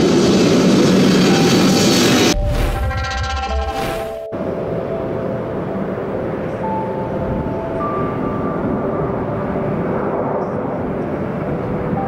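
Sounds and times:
jet engines rushing and whining: 0:00.0 - 0:12.0.

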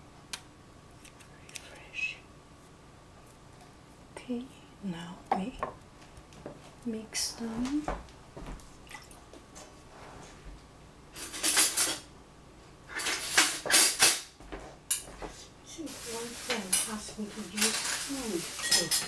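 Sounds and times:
cutlery clinking and clattering: 0:11.2 - 0:12.1, 0:12.9 - 0:14.3, 0:16.6 - 0:19.0.

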